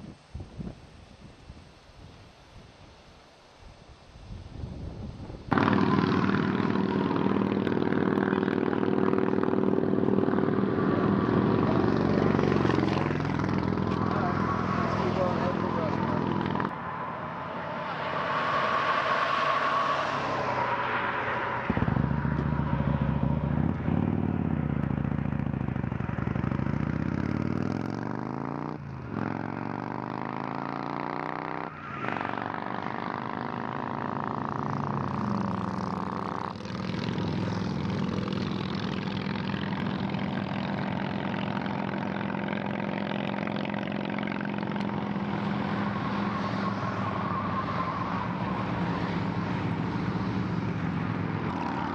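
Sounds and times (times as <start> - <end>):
motorcycle engine shifting gears: 5.5 - 16.7, 21.7 - 46.3.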